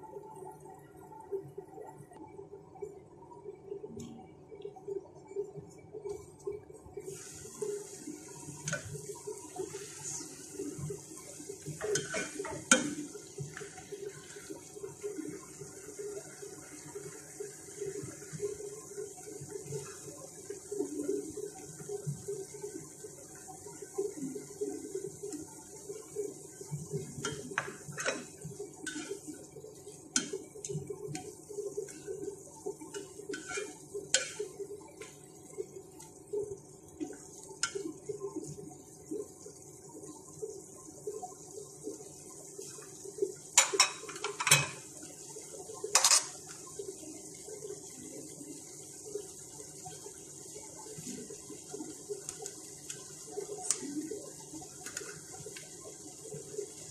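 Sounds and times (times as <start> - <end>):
stir-fry sizzling: 7.0 - 56.9
spatula scraping pan: 33.3 - 34.4.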